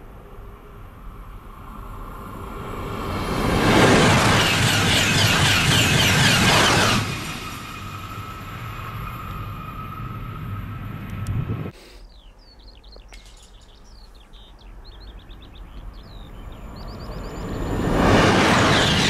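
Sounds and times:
rushing rail noise: 0.0s - 11.6s, 16.0s - 19.0s
high-speed train approaching: 0.0s - 11.7s, 14.8s - 19.0s
birds chirping: 11.7s - 18.0s.

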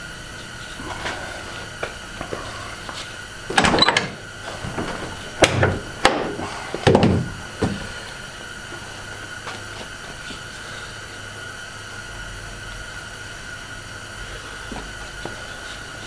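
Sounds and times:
knocks and thuds on plastic and metal: 4.7s - 7.8s.

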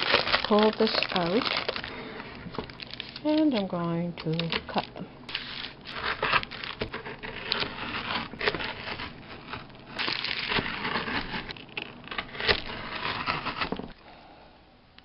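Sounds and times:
knife crunching through crisp rice: 0.0s - 1.9s, 5.3s - 13.8s
wax paper crinkling: 0.0s - 13.9s.

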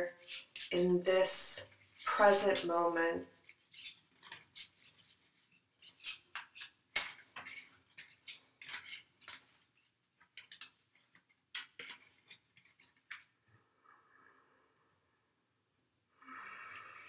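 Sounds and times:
cards being shuffled: 3.4s - 13.3s.

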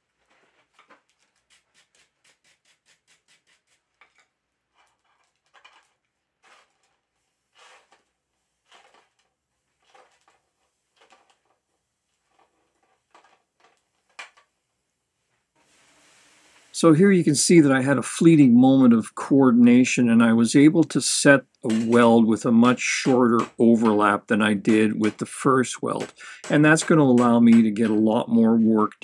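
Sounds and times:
hammer blows on anvil: 21.7s - 28.2s.

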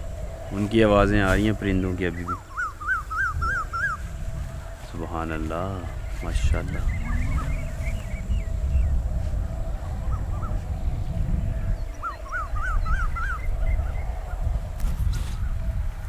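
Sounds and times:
birds calling: 0.0s - 9.1s, 9.8s - 14.7s
steady low rumble: 0.0s - 16.0s.

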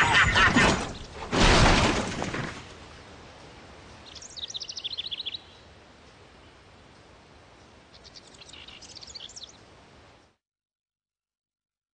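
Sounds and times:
car crashing: 0.0s - 2.7s
bird chirping: 3.9s - 9.7s.

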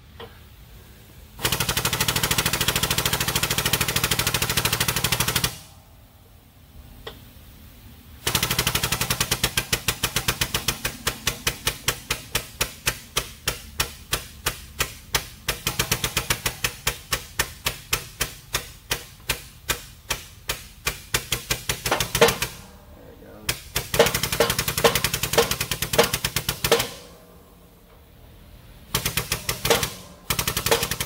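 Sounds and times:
pneumatic pump chattering: 8.2s - 22.6s, 23.5s - 27.1s, 28.9s - 31.0s.

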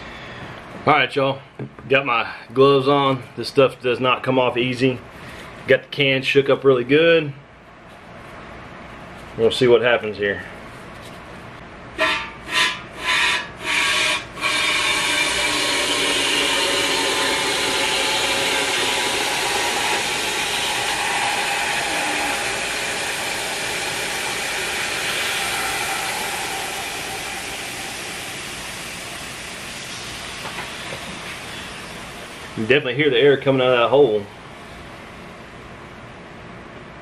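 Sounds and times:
air hissing from tire: 12.5s - 32.6s.

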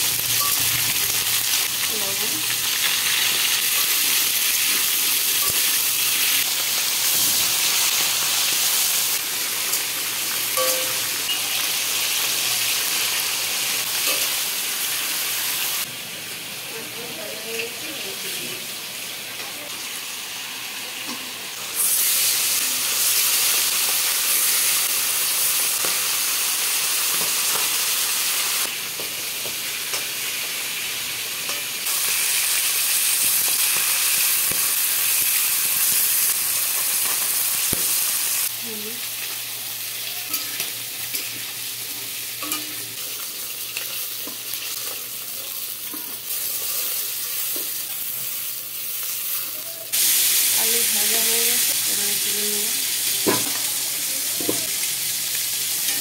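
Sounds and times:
fish frying in hot oil: 0.0s - 15.9s, 21.6s - 56.0s.

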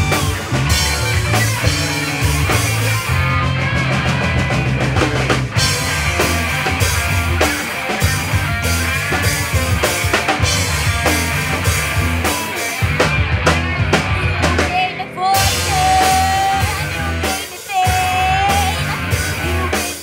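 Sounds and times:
rapid drum hits: 0.0s - 14.7s
rock band playing live: 0.0s - 20.0s.

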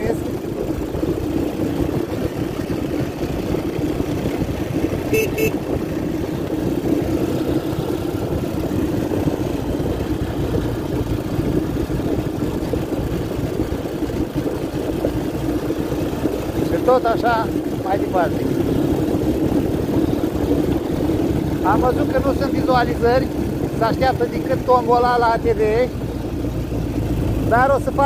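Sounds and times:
atv engine running: 0.0s - 28.0s
short high beeps: 5.1s - 5.6s.

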